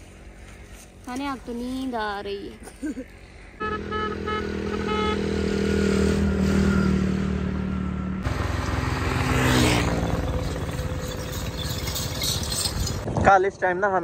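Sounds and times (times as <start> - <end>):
motorcycle engine running: 3.6 - 13.1
motorcycle passing by: 3.6 - 13.1.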